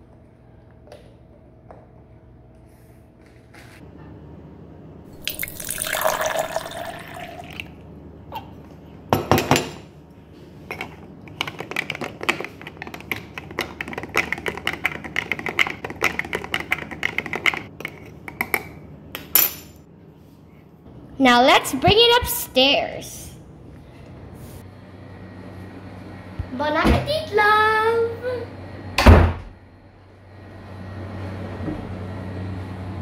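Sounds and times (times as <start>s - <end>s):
liquid pouring into plastic pitcher: 5.2s - 7.8s.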